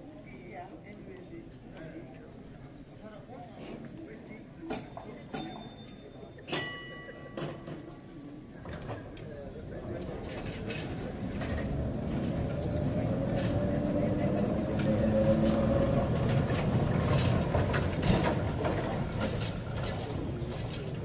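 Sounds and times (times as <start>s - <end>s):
vehicle rumbling past: 11.1s - 20.7s.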